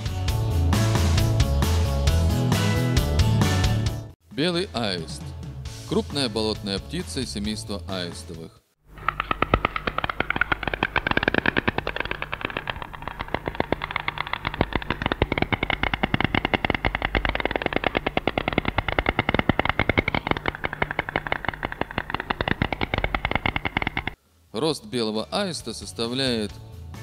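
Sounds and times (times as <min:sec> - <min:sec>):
stork clattering its bill: 0:08.9 - 0:24.2.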